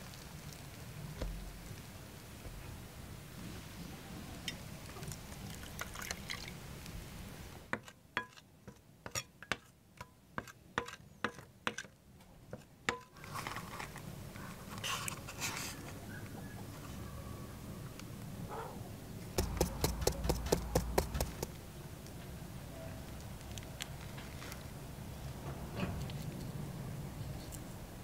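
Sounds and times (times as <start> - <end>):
water pouring onto powder: 5.0 - 6.6
wet paste scraping: 19.4 - 21.6.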